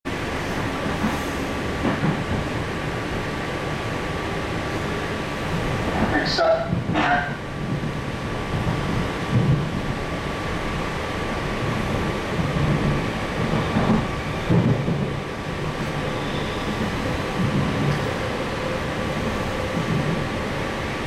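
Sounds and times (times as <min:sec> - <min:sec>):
train wheels rumbling on rails: 0:00.1 - 0:21.0.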